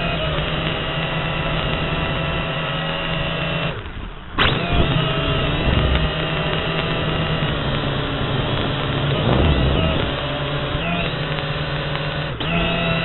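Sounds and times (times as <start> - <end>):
drone propellers buzzing: 4.5 - 12.9.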